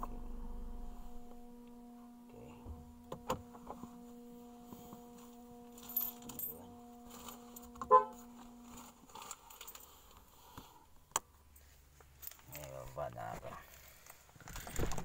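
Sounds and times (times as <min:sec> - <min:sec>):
car cabin hum: 0:00.0 - 0:09.2.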